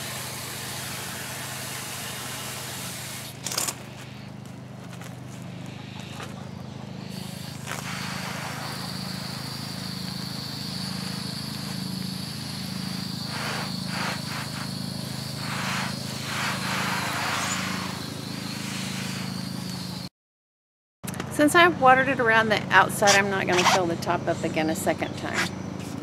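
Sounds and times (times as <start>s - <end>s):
hose nozzle spraying water: 0.0s - 3.9s, 7.1s - 20.1s
low engine drone: 0.0s - 20.1s.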